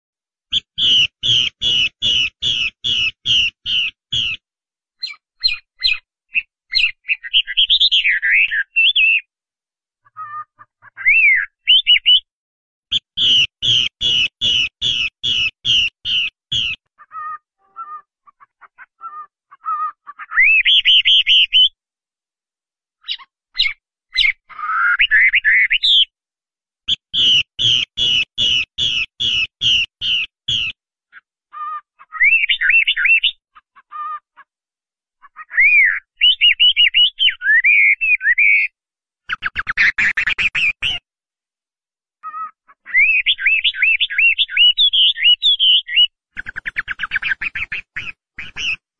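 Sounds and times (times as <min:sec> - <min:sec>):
bird singing whistled notes: 0:00.5 - 0:04.4, 0:05.0 - 0:09.3, 0:11.0 - 0:12.3, 0:12.9 - 0:16.8, 0:23.0 - 0:26.1, 0:26.9 - 0:30.8, 0:32.1 - 0:33.4, 0:35.5 - 0:41.0, 0:42.9 - 0:48.8.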